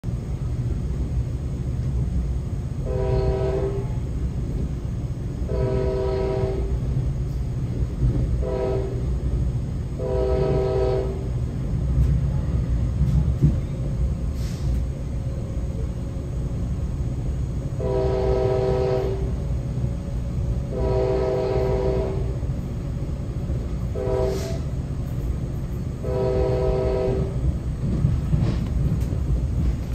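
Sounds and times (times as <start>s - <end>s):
train rumbling on rails: 0.0s - 29.9s
locomotive horn blasts: 2.8s - 4.1s, 5.4s - 6.9s, 8.4s - 9.2s, 10.0s - 11.3s, 17.8s - 19.4s, 20.6s - 22.4s, 23.8s - 24.8s, 26.0s - 27.4s.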